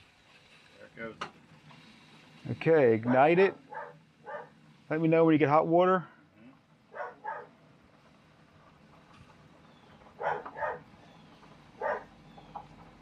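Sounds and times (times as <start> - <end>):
dog barking: 3.1 - 4.5, 6.9 - 7.5, 10.2 - 10.9, 11.8 - 12.1.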